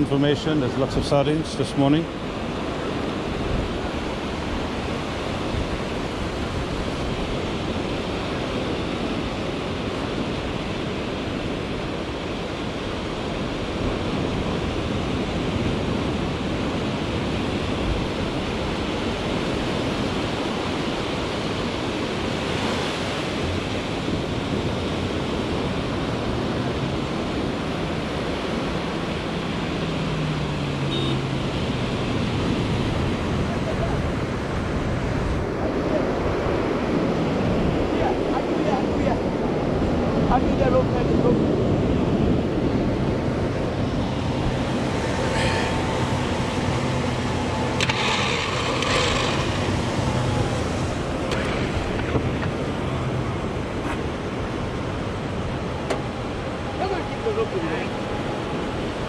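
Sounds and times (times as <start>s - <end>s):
surf breaking on a beach: 0.0s - 59.0s
wind on the microphone: 31.5s - 59.0s.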